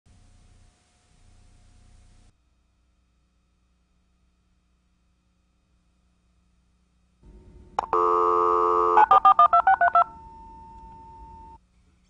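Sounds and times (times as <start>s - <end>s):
faint steady tone: 0.1s - 11.7s
telephone line click: 7.8s - 8.2s, 8.9s - 11.4s
telephone dial tone: 7.8s - 11.6s
touch-tone digits: 7.8s - 11.6s.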